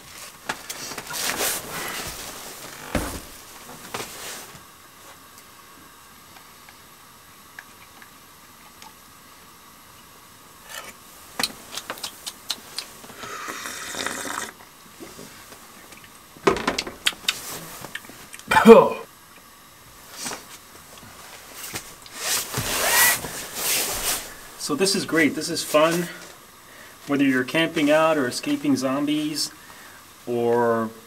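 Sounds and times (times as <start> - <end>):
gas burner hissing: 13.1 - 14.6
short rustle: 20.1 - 24.6.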